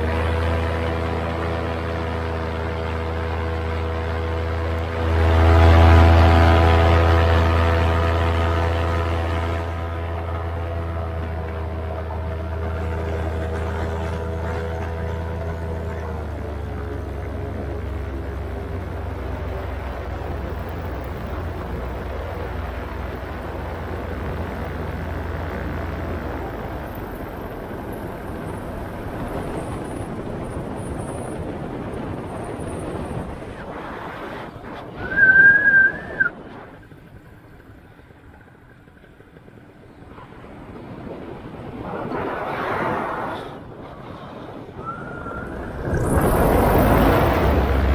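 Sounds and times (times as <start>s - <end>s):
paramotor engine drone: 0.0s - 47.9s
wind on microphone: 0.0s - 47.9s
high steady whistle-like tone: 35.0s - 36.4s, 44.8s - 46.4s.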